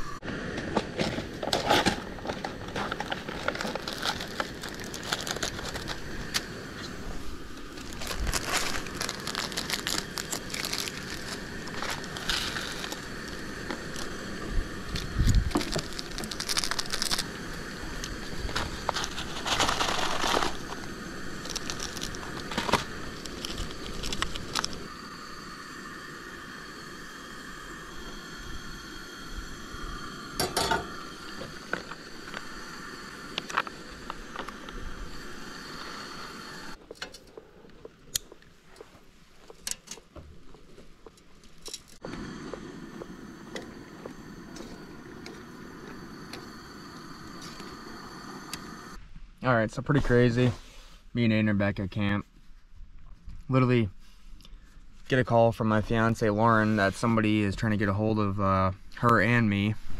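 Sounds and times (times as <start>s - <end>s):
plastic packets crinkling and tearing: 2.3s - 6.5s, 7.5s - 14.1s, 14.9s - 24.9s.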